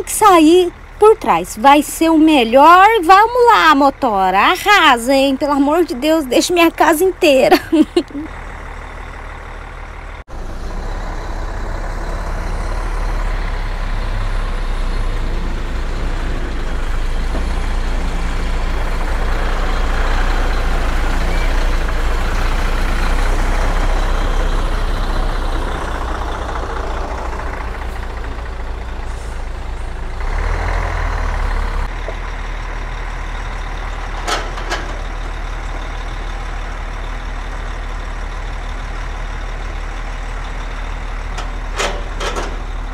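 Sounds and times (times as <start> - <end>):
truck diesel engine running: 0.0 - 42.9.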